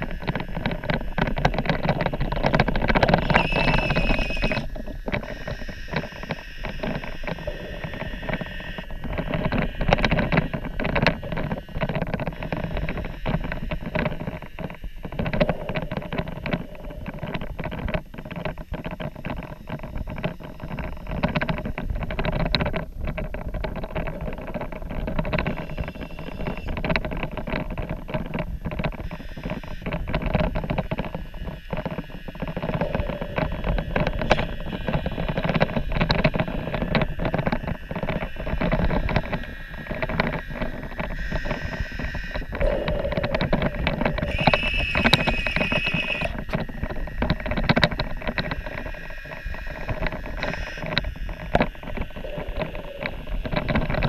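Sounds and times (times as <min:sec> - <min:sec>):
electric motor whine underwater: 0:00.0 - 0:14.5, 0:25.3 - 0:26.8, 0:28.9 - 0:54.0
higher whine: 0:00.0 - 0:14.5, 0:25.3 - 0:26.8, 0:31.0 - 0:54.0
dense crackle of clicks: 0:00.0 - 0:54.0.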